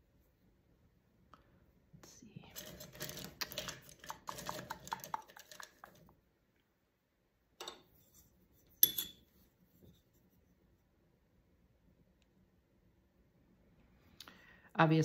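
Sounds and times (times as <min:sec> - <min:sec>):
tool clinking on table: 0:07.6 - 0:07.9, 0:08.8 - 0:09.2.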